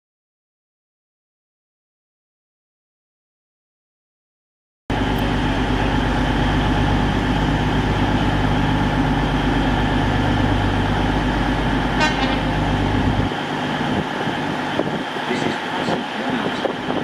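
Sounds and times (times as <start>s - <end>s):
diesel train engines droning: 4.9s - 17.0s
high train horn toot: 11.9s - 13.1s.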